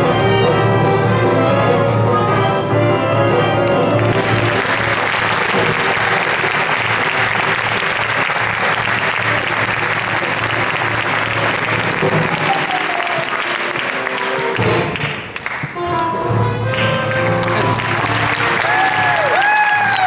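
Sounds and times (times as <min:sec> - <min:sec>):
band music: 0:00.0 - 0:20.0
audience applauding: 0:04.0 - 0:15.8, 0:16.6 - 0:20.0.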